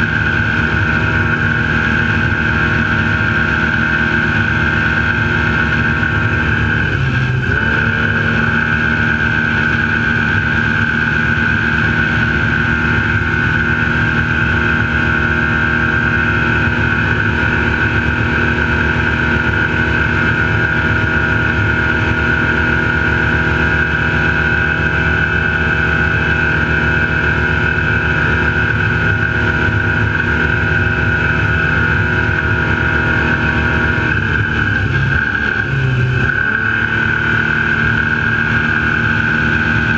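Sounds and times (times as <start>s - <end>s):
truck engine at high revs: 0.0s - 39.9s.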